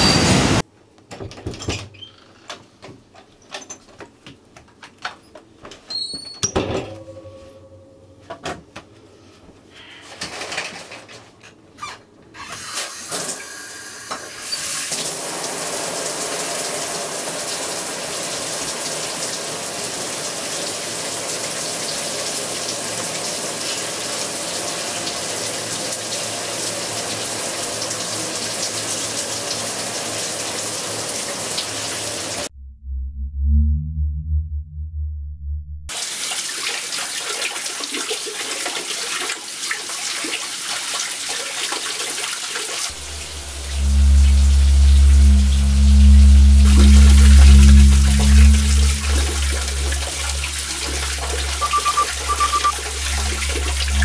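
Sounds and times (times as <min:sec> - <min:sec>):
loud deep rumble: 0:32.5 - 0:35.9, 0:42.9 - 0:54.0.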